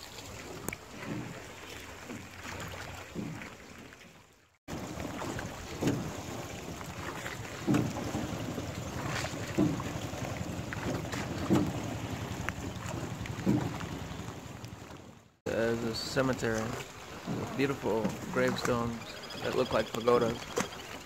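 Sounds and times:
oars stroking water: 0.0s - 21.0s.

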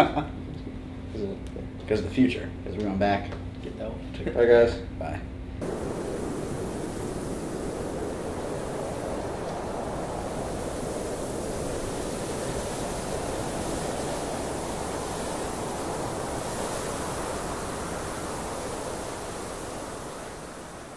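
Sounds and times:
rushing wind: 5.6s - 20.9s.

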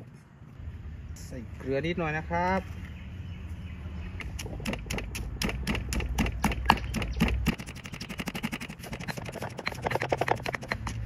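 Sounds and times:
pestle pounding in stone mortar: 4.2s - 11.0s.

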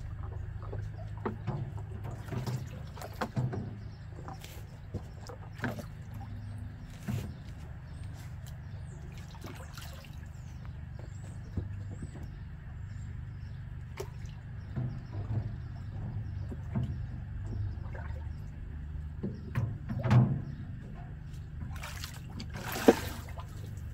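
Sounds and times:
knocks on metal tank: 19.2s - 20.6s
hand splashing water: 21.7s - 23.7s.

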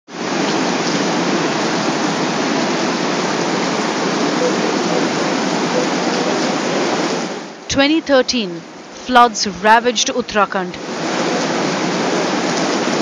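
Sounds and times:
river rushing: 0.1s - 7.7s, 10.8s - 13.0s.

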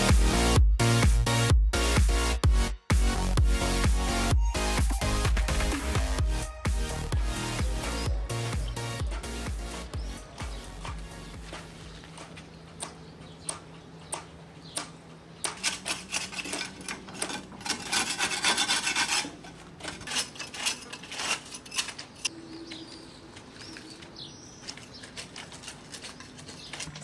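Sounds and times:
hand tool rasping hard surface: 15.5s - 22.3s, 24.8s - 27.0s.

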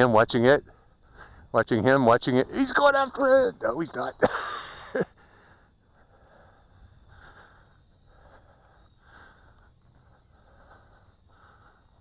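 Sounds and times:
soft breaths: 0.6s - 1.6s, 4.5s - 12.0s.

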